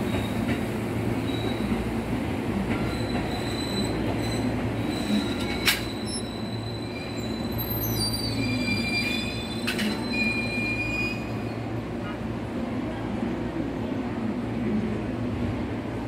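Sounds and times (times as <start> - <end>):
low train rumble: 0.0 - 16.0
train wheels squealing: 1.2 - 1.8, 2.8 - 11.7.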